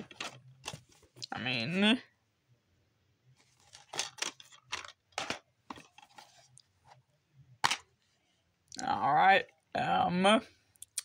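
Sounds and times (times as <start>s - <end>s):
plastic cases clicking and rattling: 0.0s - 1.0s, 3.6s - 6.4s.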